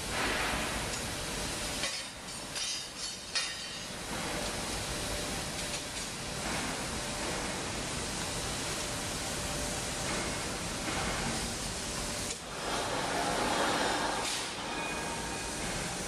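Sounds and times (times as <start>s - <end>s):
forge machinery roar: 6.2s - 16.0s.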